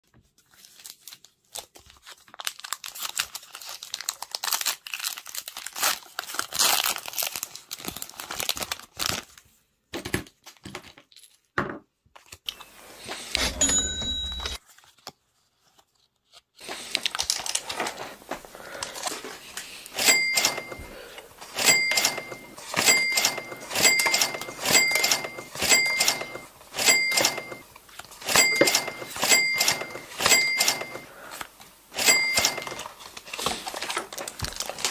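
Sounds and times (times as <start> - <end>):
trading cards rustling: 12.2 - 34.9
short ringing chime effects: 13.4 - 14.6, 21.6 - 27.6, 28.3 - 31.1.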